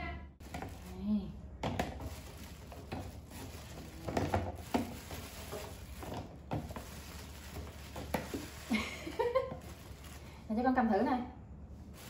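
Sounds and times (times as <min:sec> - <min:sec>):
hard objects knocking and tapping: 0:01.6 - 0:08.7.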